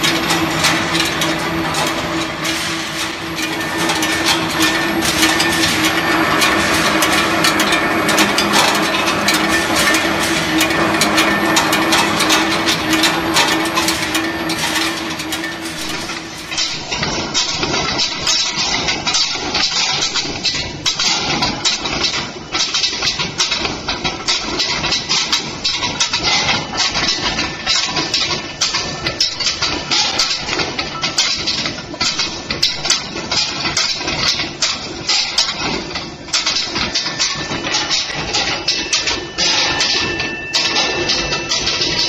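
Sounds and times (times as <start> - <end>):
sharp metal knocks: 0.0 - 22.1
rolling mill machine din: 0.0 - 42.0.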